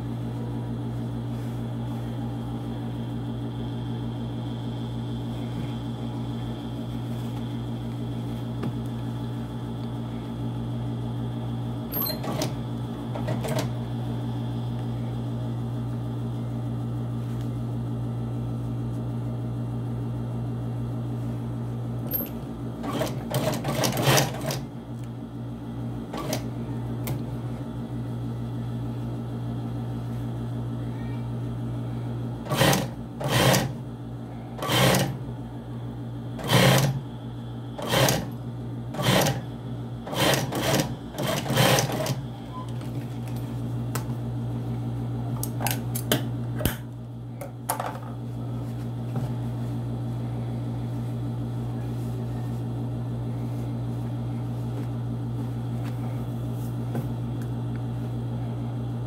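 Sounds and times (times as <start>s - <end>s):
sewing machine motor humming: 22.0s - 24.7s, 32.4s - 33.8s, 34.6s - 35.2s, 36.4s - 37.0s, 37.7s - 42.3s
sewing machine clatter: 22.2s - 24.6s, 32.5s - 33.8s, 34.6s - 35.2s, 36.4s - 37.0s, 37.8s - 38.3s, 39.0s - 39.4s, 40.1s - 42.2s.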